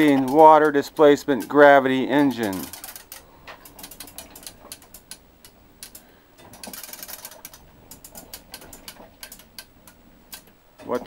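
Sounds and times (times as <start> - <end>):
ratchet pawls clicking: 2.2 - 5.2.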